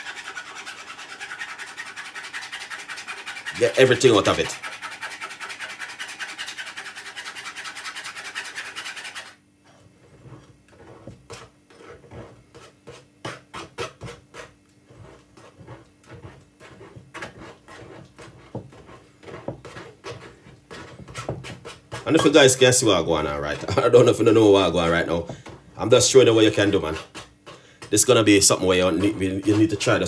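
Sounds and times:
spoon scraping metal strainer: 28.3 - 30.0.

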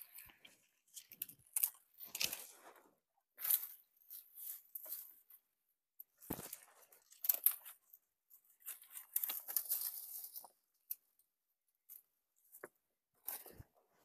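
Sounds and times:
grass stems rustling: 0.0 - 2.8, 6.2 - 10.6.

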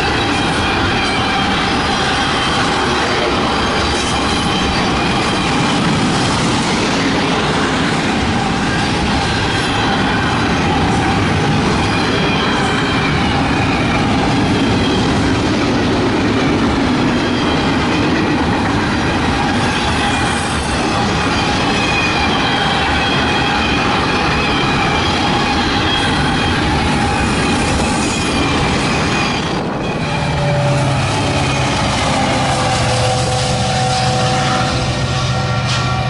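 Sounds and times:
diesel locomotive engine drone: 0.0 - 36.0
train wheels clattering on rails: 0.0 - 36.0
wheels squealing: 19.4 - 35.7.

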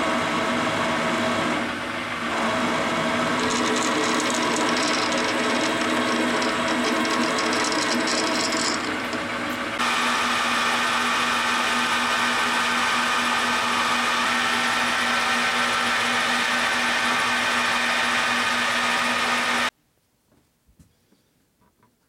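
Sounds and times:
metal lathe gear whine: 2.1 - 19.7.

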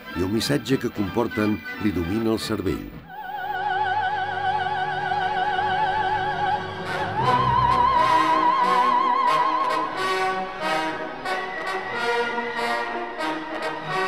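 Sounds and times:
operatic singing with vibrato: 3.1 - 13.8.

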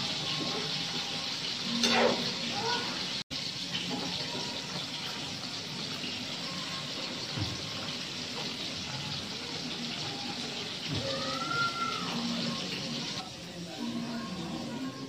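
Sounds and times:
pan simmering and bubbling: 0.0 - 15.0.

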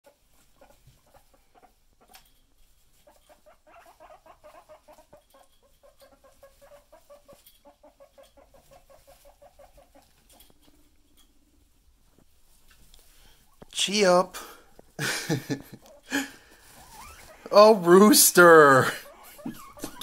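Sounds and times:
guinea pig rumbling: 0.3 - 11.8, 15.7 - 20.0.

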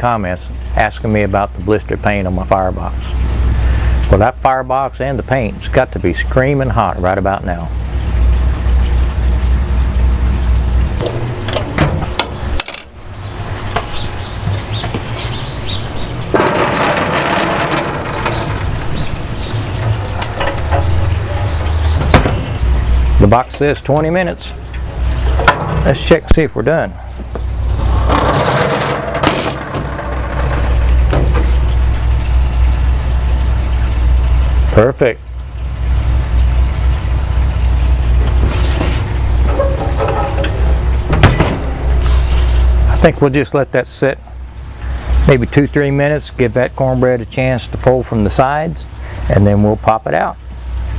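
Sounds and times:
steady low rumble: 7.9 - 45.2
skillet scraping on metal grate: 11.0 - 23.6, 27.0 - 32.6, 38.0 - 43.1
low rumble: 36.1 - 43.3
metal clinks and clanks: 38.8 - 42.8.

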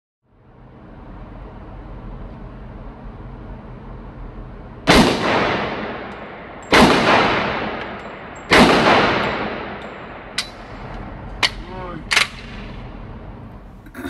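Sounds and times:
pistol shots echoing indoors: 4.9 - 10.6.

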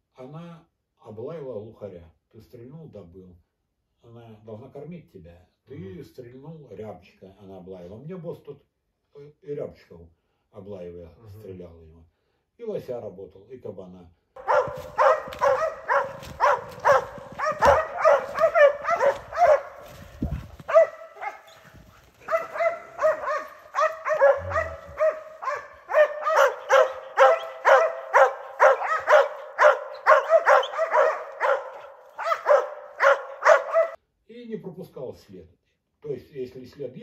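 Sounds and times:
dog barking: 14.4 - 34.0.

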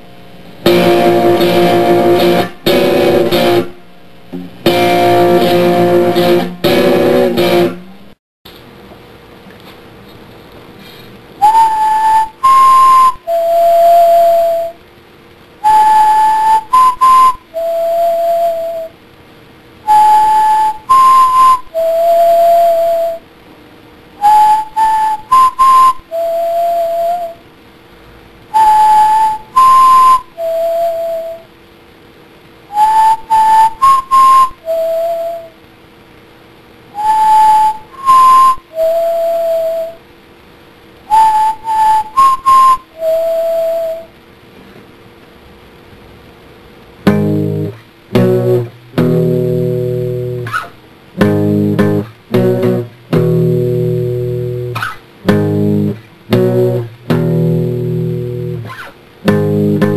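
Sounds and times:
whistled melody: 11.4 - 14.8, 15.6 - 19.0, 19.8 - 23.3, 24.2 - 27.5, 28.5 - 31.5, 32.7 - 35.6, 37.0 - 40.0, 41.1 - 44.1.

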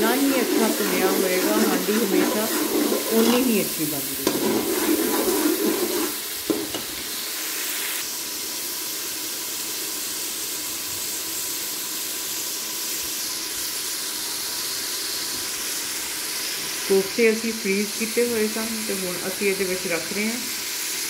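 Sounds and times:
metal spoon stirring and scraping: 0.0 - 6.8
masala sizzling in oil: 0.0 - 21.0
spoon knocking on pot: 6.5 - 6.9.

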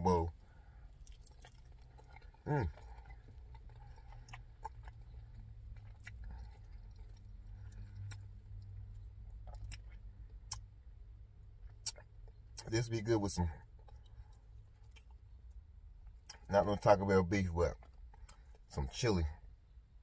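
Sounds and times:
low steady hum: 0.0 - 20.0
person chewing food: 0.3 - 10.7, 13.6 - 16.8, 17.8 - 18.7.

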